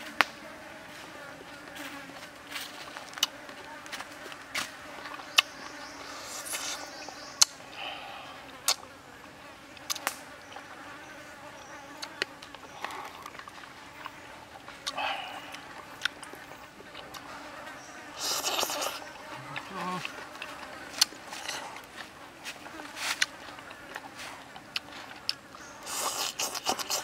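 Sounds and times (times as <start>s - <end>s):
insects buzzing: 0.0s - 27.0s
mouth chewing clicks and smacks: 3.1s - 3.4s, 12.0s - 17.3s, 18.2s - 21.9s, 23.2s - 27.0s.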